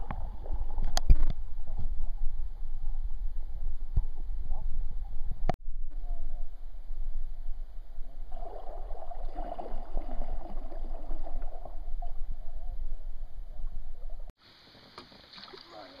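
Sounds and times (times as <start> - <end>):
low steady rumble: 0.0 - 14.4
water gurgling around a kayak: 8.3 - 14.2.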